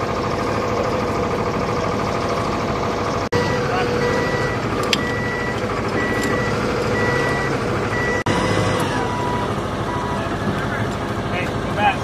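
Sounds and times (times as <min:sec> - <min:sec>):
steady mechanical drone: 0:00.0 - 0:12.0
electronic warning beeper: 0:03.4 - 0:10.4.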